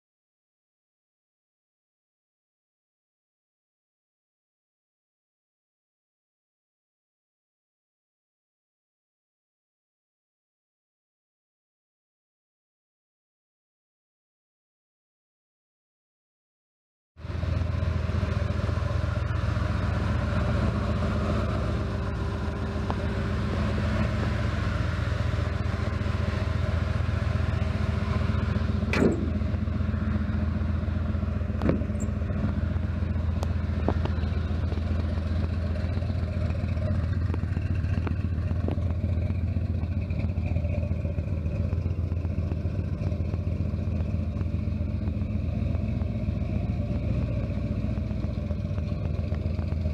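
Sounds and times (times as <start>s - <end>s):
pickup engine idling: 17.2s - 49.9s.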